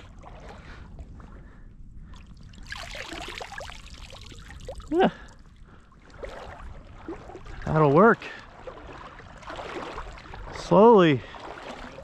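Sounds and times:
water pouring and dripping: 0:02.4 - 0:05.3.

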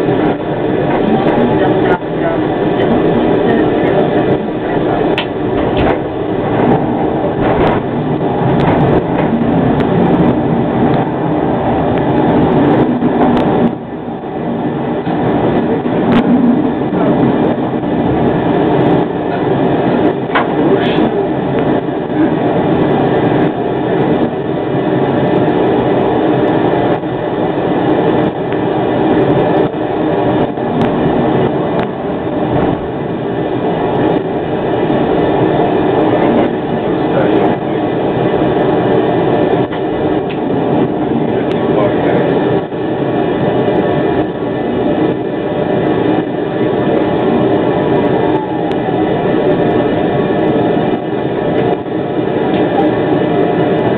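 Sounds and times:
tram wheels rumbling on rails: 0:00.0 - 0:53.9
sharp track clicks: 0:05.0 - 0:11.2.

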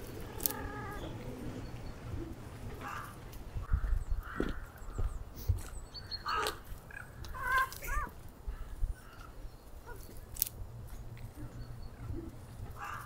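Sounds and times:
cats caterwauling: 0:00.0 - 0:03.2.

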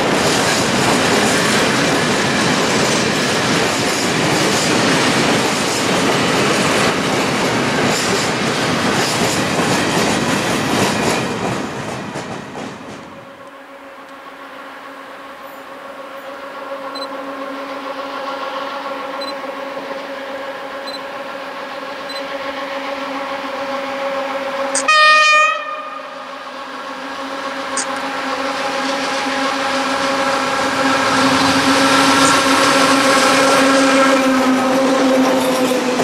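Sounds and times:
electric locomotive hum: 0:00.0 - 0:36.0
rumble of wheels on rail: 0:00.0 - 0:36.0
train horn blast: 0:22.4 - 0:35.3.

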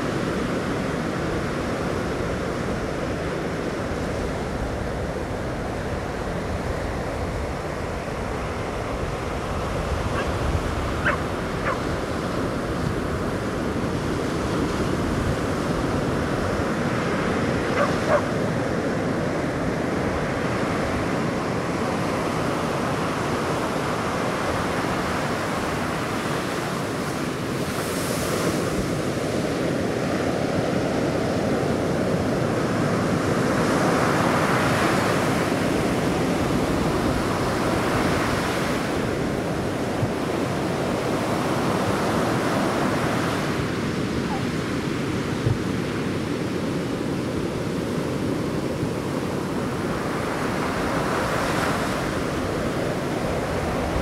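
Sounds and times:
ocean surf breaking: 0:00.0 - 0:54.0
wind on microphone: 0:00.0 - 0:54.0.

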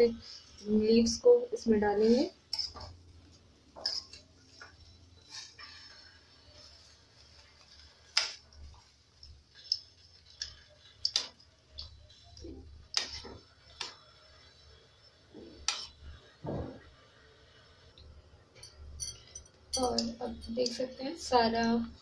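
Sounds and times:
boiling water: 0:00.0 - 0:22.0
metal tongs clinking on steel pot: 0:02.5 - 0:02.9, 0:03.8 - 0:06.1, 0:08.1 - 0:12.0, 0:12.9 - 0:14.0, 0:15.6 - 0:16.0, 0:18.6 - 0:20.9.

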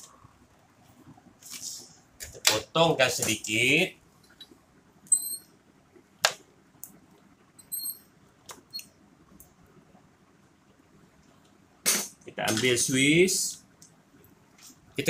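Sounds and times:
short high-pitched squeaks: 0:05.1 - 0:05.5, 0:07.6 - 0:08.1.

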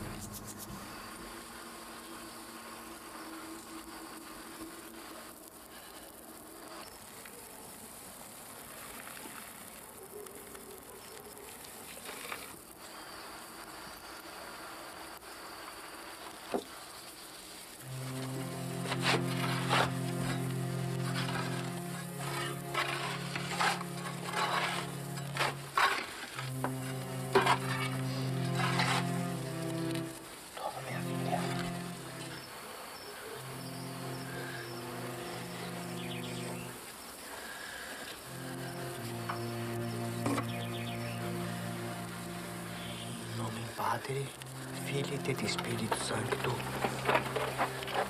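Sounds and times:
soft music with sustained chords: 0:00.0 - 0:06.8, 0:17.8 - 0:37.6, 0:38.2 - 0:48.0
crickets chirring: 0:00.0 - 0:07.5, 0:08.8 - 0:48.0
shovels scraping earth: 0:18.8 - 0:30.1, 0:45.3 - 0:48.0.

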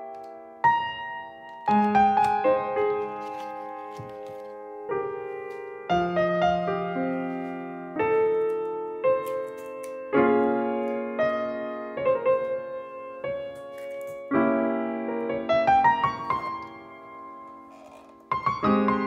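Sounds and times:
piano playing slow chords: 0:04.6 - 0:17.7, 0:18.3 - 0:19.0.

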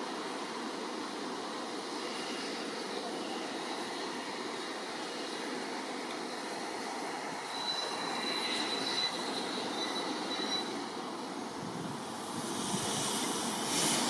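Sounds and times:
steam train wheels on rails: 0:00.0 - 0:14.0
high wheel squeal: 0:07.3 - 0:11.5.

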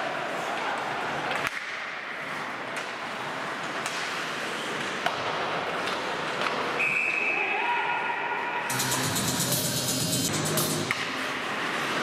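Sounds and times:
hockey sticks and puck clacking: 0:00.0 - 0:07.4, 0:10.3 - 0:12.0
arena noise: 0:00.0 - 0:12.0.

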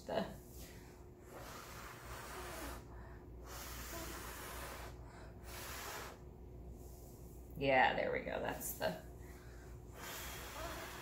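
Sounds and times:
person blowing hard: 0:01.3 - 0:06.2, 0:10.0 - 0:11.0.

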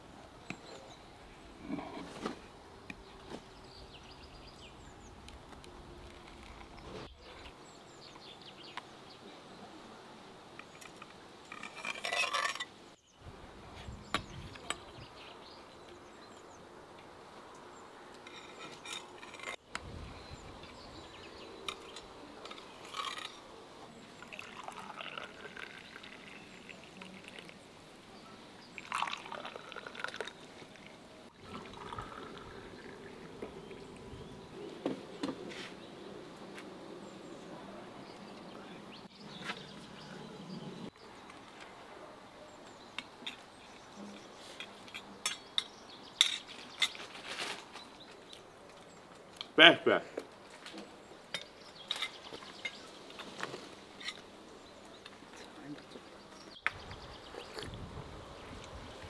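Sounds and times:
tea pouring into glass cups: 0:24.1 - 0:27.7, 0:28.6 - 0:33.9.

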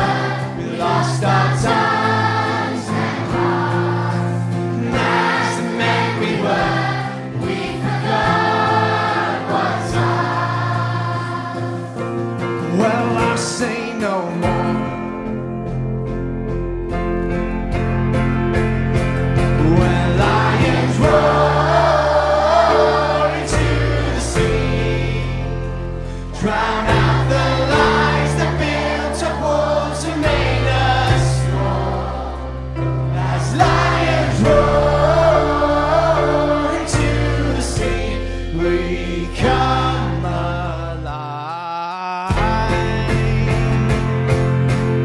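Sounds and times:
children's choir singing: 0:00.0 - 0:13.6, 0:19.6 - 0:41.1
held bass notes: 0:00.0 - 0:13.6, 0:14.4 - 0:41.4, 0:42.3 - 0:45.0
strummed guitar: 0:00.0 - 0:41.3, 0:42.3 - 0:45.0
band singer singing: 0:12.4 - 0:15.4, 0:19.4 - 0:32.1, 0:33.2 - 0:44.5.

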